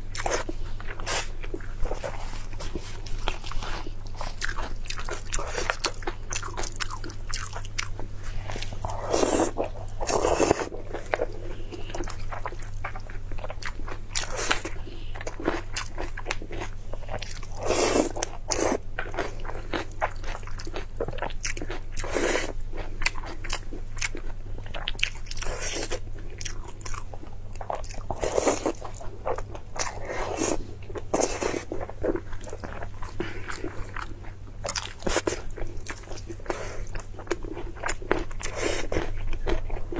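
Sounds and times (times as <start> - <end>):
steady low hum: 0.0 - 39.9
person chewing and biting food: 0.1 - 39.9.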